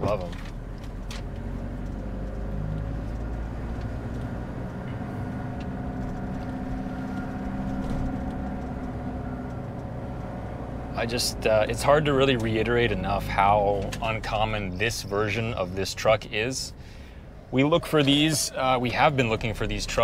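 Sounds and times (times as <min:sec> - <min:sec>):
diesel engine droning: 0:00.0 - 0:20.0
road noise: 0:00.0 - 0:20.0.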